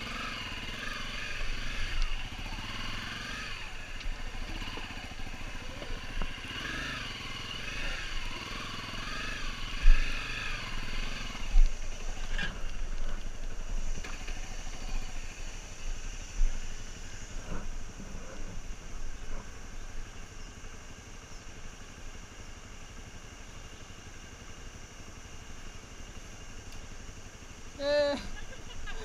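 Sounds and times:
dirt bike engine: 0.0 - 29.0.

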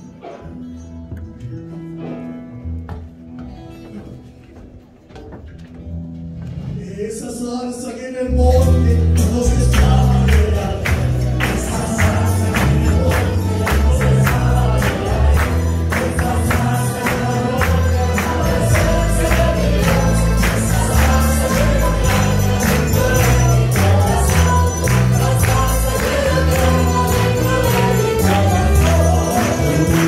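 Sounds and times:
live band playing worship music: 5.9 - 30.0
people singing: 7.8 - 30.0
tambourine: 15.3 - 30.0.

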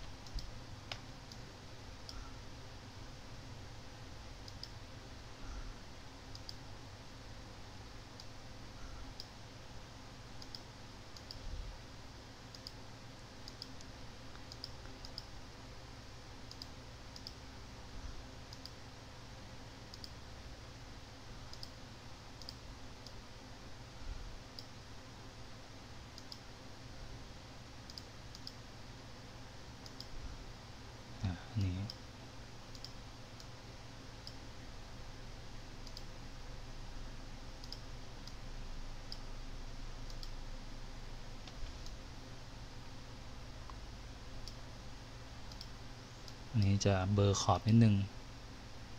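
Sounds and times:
computer mouse clicking: 0.0 - 1.4, 4.4 - 4.8, 6.3 - 6.6, 10.4 - 11.4, 12.5 - 12.8, 13.4 - 15.4, 16.5 - 17.4, 18.5 - 18.8, 19.9 - 20.2, 21.5 - 21.8, 22.4 - 23.2, 26.2 - 26.5, 27.8 - 28.6, 29.8 - 30.2, 32.7 - 33.6, 35.8 - 36.1, 37.6 - 38.4, 39.0 - 39.3, 40.0 - 40.4, 45.5 - 46.4
faint steady low hum: 0.0 - 48.9.

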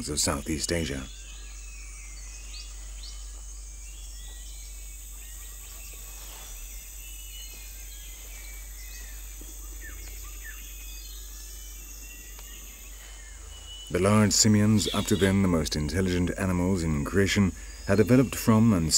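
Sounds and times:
high-pitched insect drone: 0.0 - 18.9
low steady hum: 0.0 - 18.9
bird chirps and whistles: 6.6 - 15.8.

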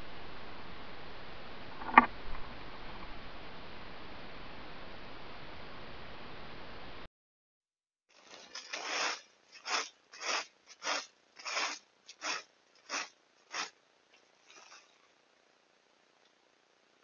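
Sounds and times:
leaf rake scraping dirt: 8.1 - 13.8, 14.4 - 15.1.

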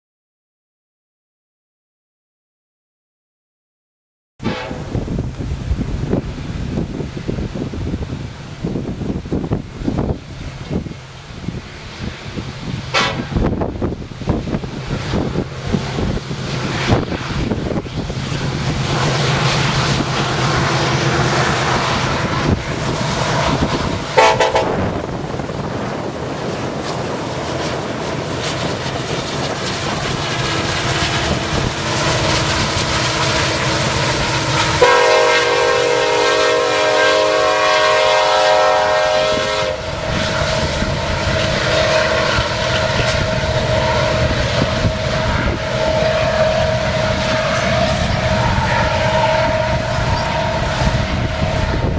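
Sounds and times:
diesel locomotives rumbling past: 4.4 - 51.9
train cars clickety-clack: 12.3 - 36.6
locomotive horn: 12.9 - 13.5, 19.0 - 25.4, 31.1 - 51.9.

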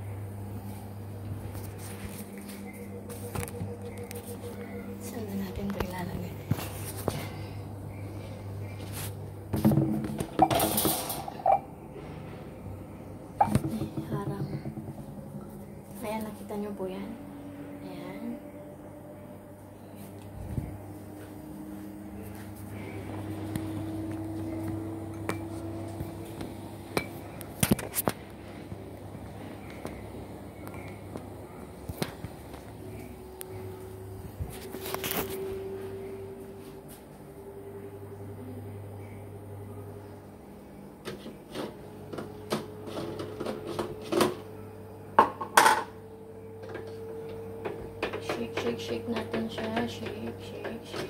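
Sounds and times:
low hum: 0.0 - 51.0
metal pots clattering: 9.6 - 11.6
sharp knocks: 13.4 - 15.1.

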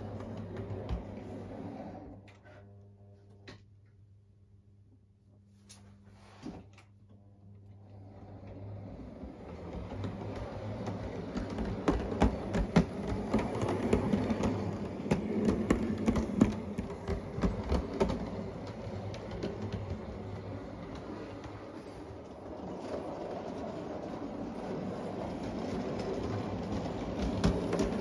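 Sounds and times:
wheels clicking over rail joints: 8.5 - 28.0.

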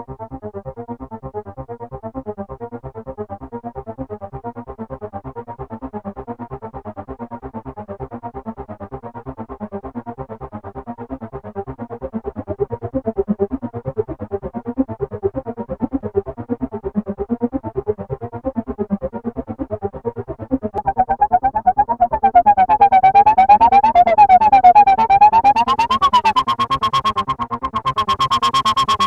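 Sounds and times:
synthesizer repeating note run: 20.2 - 29.0.

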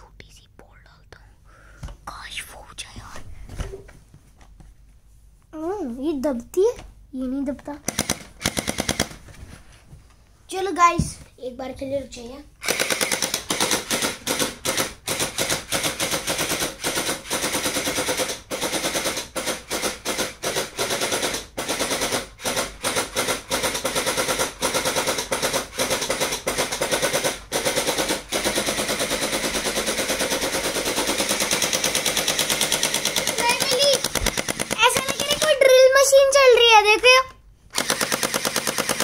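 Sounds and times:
toy blaster gearbox rattling: 23.6 - 35.7.

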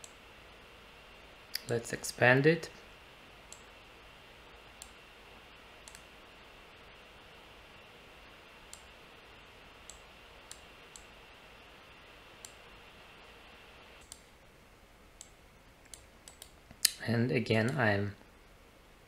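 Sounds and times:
faint steady hiss: 0.0 - 19.0
computer mouse clicks: 3.5 - 3.7, 5.8 - 6.1, 8.7 - 8.9, 9.8 - 11.1, 12.4 - 12.6, 14.0 - 14.3, 15.2 - 17.0.

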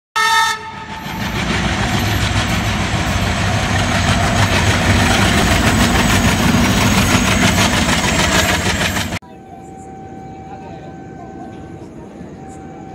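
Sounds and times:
short loud horn tone: 0.2 - 0.9
diesel locomotive engine rumble: 0.2 - 12.9.

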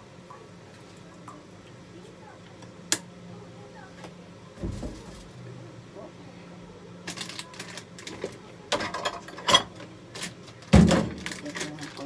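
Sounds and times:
kitchen items clicking and knocking: 7.1 - 12.0
dishes clattering: 8.1 - 11.3
packaging rustling: 10.2 - 12.0.

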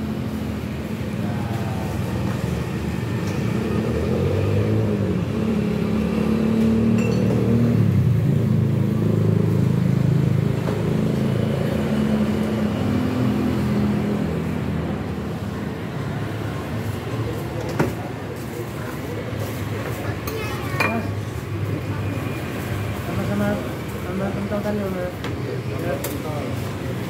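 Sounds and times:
passing vehicle engine hum: 0.0 - 20.2.

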